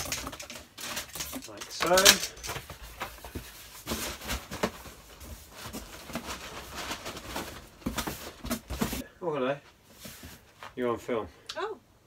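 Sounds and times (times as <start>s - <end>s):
cardboard rustling and scraping: 0.0s - 9.0s.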